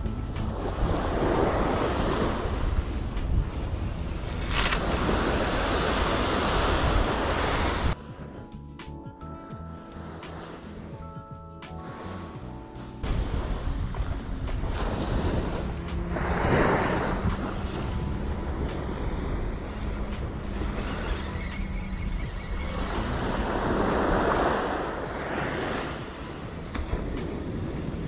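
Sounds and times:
wind buffeting microphone: 0.0s - 8.5s, 13.0s - 28.0s
small waves breaking on beach: 4.5s - 8.0s, 22.4s - 26.3s.

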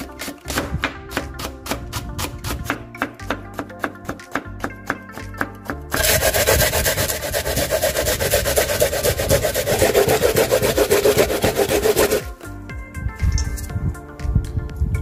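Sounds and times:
onion rasping on a grater: 6.0s - 12.3s.

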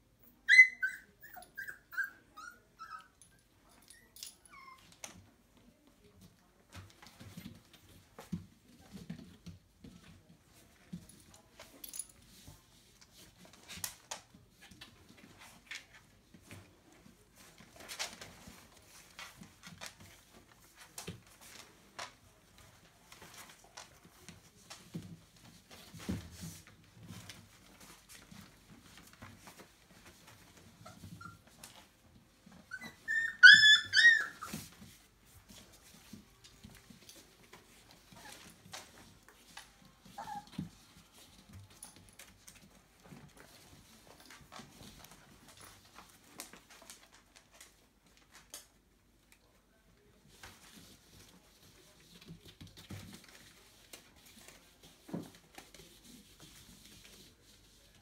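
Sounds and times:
puppy whining: 0.2s - 5.3s, 30.6s - 34.8s, 40.0s - 40.8s
soft clicks and rustles: 3.0s - 33.1s, 34.3s - 58.0s.

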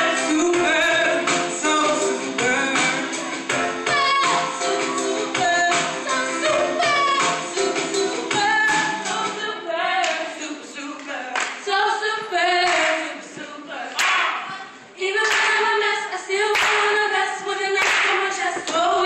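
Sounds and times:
women singing a cappella: 0.0s - 19.0s
sharp claps: 11.0s - 11.6s, 12.6s - 13.0s, 14.0s - 14.3s, 15.2s - 15.7s, 16.5s - 17.0s, 17.8s - 18.8s.

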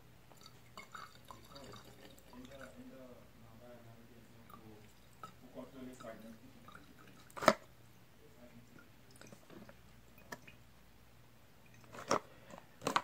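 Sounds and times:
liquid pouring into bottle: 0.3s - 2.8s, 4.4s - 7.7s.

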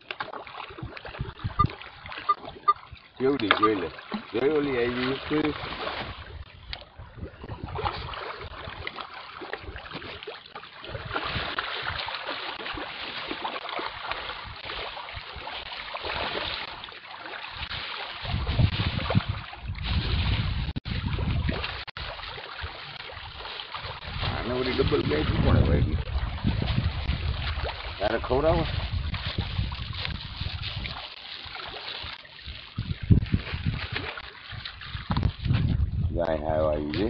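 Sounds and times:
water splashing from feeding fish: 0.0s - 6.6s, 7.6s - 35.8s
wind rumble on microphone: 0.7s - 3.1s, 5.2s - 8.9s, 10.8s - 12.2s, 14.0s - 16.4s, 17.6s - 31.2s, 32.0s - 37.0s.

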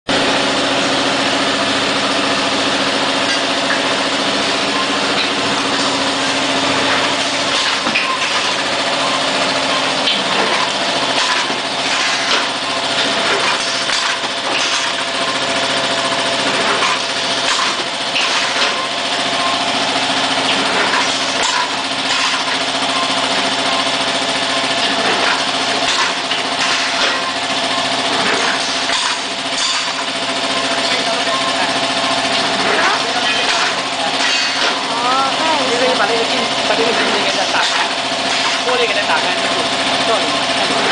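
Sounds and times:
packing machine motor hum: 0.1s - 40.9s
machine parts clacking: 6.8s - 15.3s, 24.7s - 31.5s, 32.3s - 34.9s.

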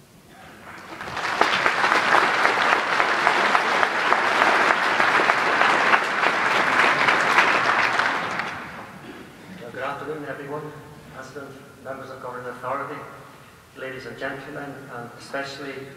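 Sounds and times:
large audience applauding: 0.4s - 9.1s.

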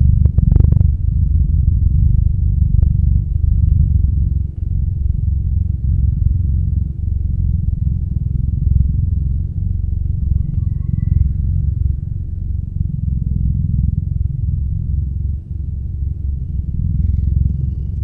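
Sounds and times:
loud low rumble: 0.0s - 18.0s.

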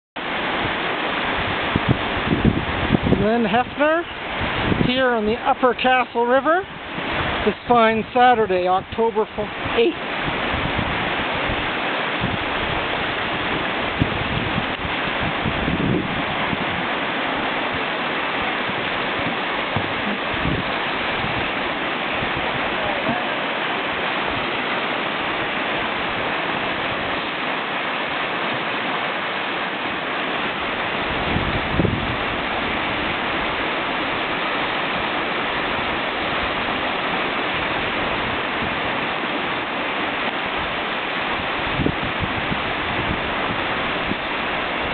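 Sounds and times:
water rushing over rocks: 0.2s - 44.9s
low bump: 19.2s - 21.5s.

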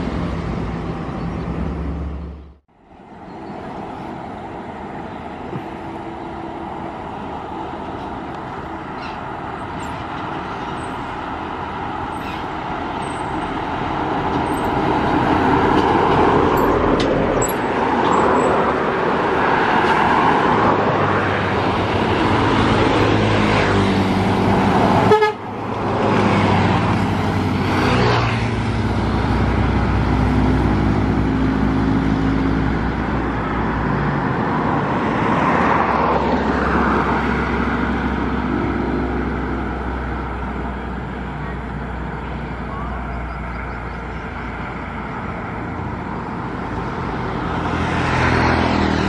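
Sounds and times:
heavy vehicles passing: 0.0s - 49.0s
vehicle horn: 25.0s - 25.5s.

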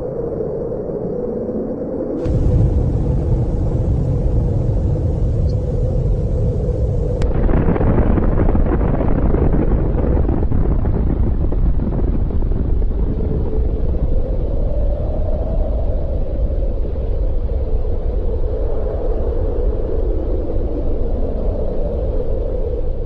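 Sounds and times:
explosion rumble: 2.2s - 14.5s.

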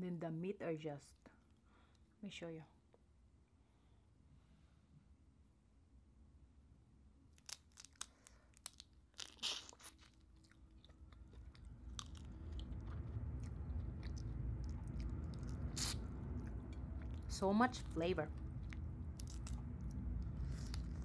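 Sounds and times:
chewing: 7.4s - 17.3s, 18.3s - 21.0s.

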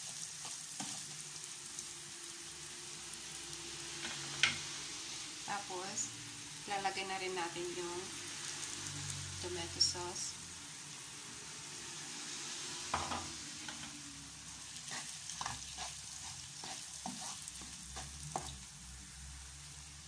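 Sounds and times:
wooden spoon scraping a pan: 0.0s - 1.2s, 12.9s - 18.7s
food sizzling in a pan: 0.0s - 20.0s.

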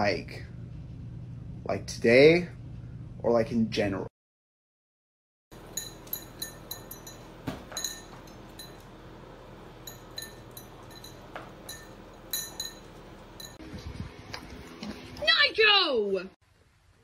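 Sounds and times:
food bowl clinking: 5.6s - 13.6s.

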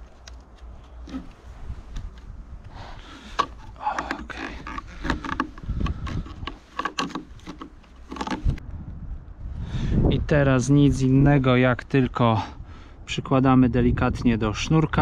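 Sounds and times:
gloved hands clicking and rustling: 0.0s - 8.6s
low steady rumble: 0.0s - 14.7s.

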